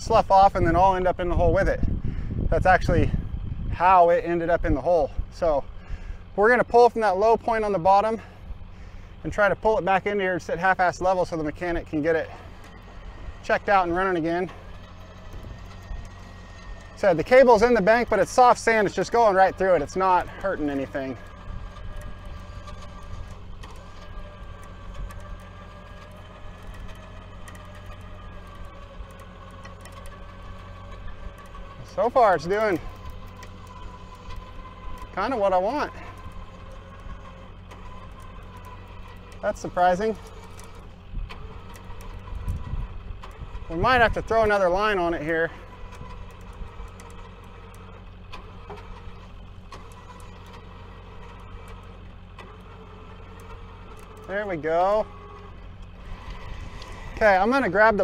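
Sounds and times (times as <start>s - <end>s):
truck engine running: 0.0s - 58.0s
winch whining: 0.0s - 58.0s.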